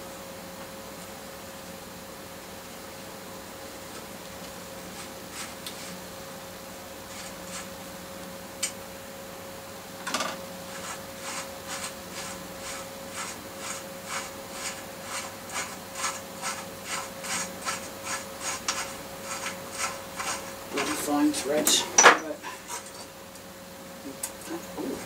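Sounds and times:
faint hum: 0:00.0 - 0:25.0
threads rasping: 0:04.9 - 0:06.0, 0:07.1 - 0:07.7, 0:10.7 - 0:23.1.

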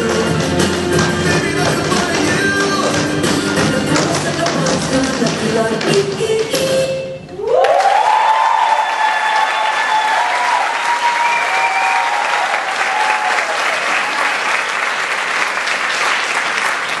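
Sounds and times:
cheering shouts: 0:07.4 - 0:14.3
audience applauding: 0:07.5 - 0:17.0.

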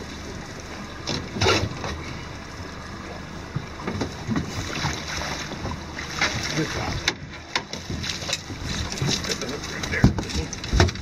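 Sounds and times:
water sloshing against boat: 0:00.0 - 0:11.0
sharp splash: 0:04.4 - 0:07.0.

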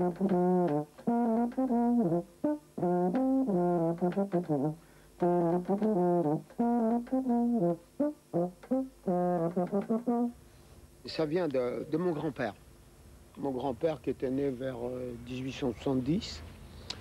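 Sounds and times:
brass horn playing a tune: 0:00.0 - 0:10.4.

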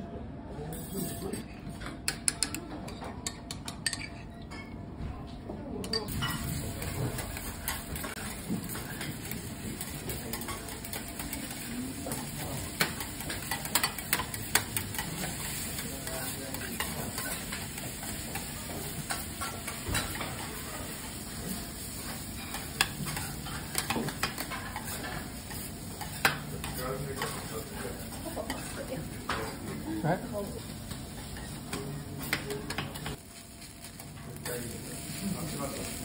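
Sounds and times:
spatula clacking on griddle: 0:05.9 - 0:21.1, 0:22.0 - 0:29.6
rice sizzling in oil: 0:06.1 - 0:36.0.

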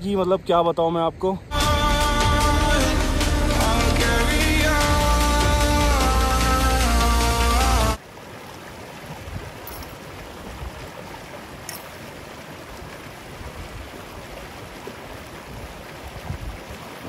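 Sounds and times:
background music: 0:01.5 - 0:08.0
stream running over stones: 0:07.7 - 0:17.0.

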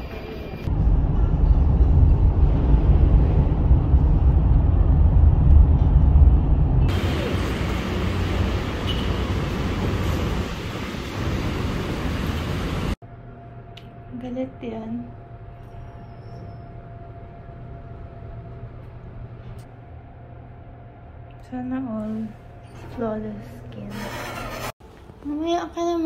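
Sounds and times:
road vehicle rumbling: 0:00.6 - 0:13.0
hissy traffic noise: 0:06.9 - 0:13.0.

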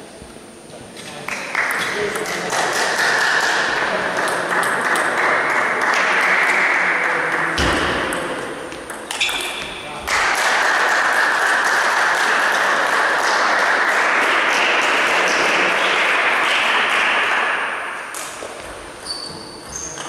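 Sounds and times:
audience applauding: 0:01.3 - 0:07.5, 0:10.1 - 0:17.4
short high squeaks: 0:19.0 - 0:20.0.

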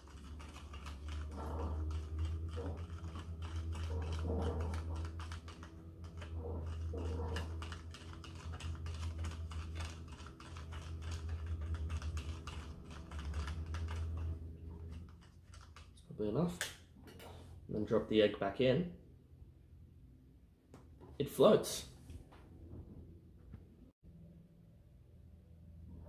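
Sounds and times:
straw rattling against plastic cup: 0:00.0 - 0:16.1.

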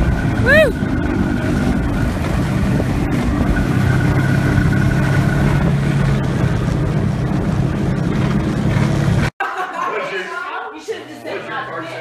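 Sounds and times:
rushing wind: 0:00.0 - 0:09.3.

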